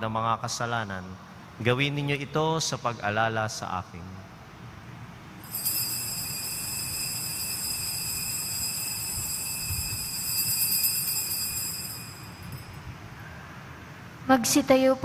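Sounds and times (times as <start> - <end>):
altar bells jingling: 5.4 - 13.0.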